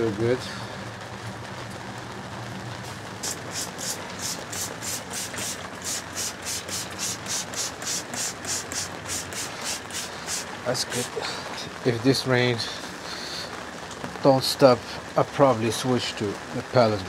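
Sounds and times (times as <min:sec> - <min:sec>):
spray bottle squirts: 0:02.8 - 0:11.1.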